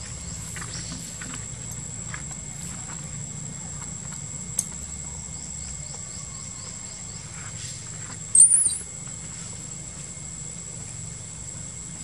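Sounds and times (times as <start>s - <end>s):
soft falling chirps: 8.3s - 8.9s
wavering high squeak: 8.3s - 8.9s.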